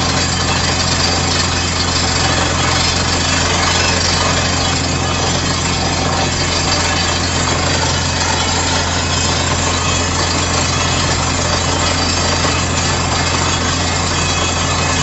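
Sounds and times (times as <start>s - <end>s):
low engine drone: 0.0s - 15.0s
rotating drill and spraying slurry: 0.0s - 15.0s.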